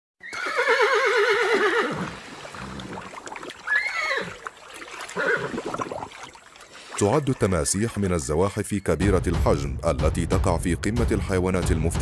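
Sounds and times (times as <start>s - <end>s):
horse whinnying: 0.2s - 4.5s, 5.1s - 6.0s.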